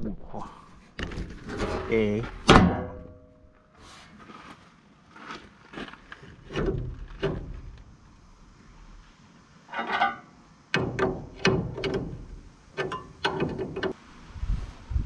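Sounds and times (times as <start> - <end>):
metal linkage clanking: 10.8 - 14.0.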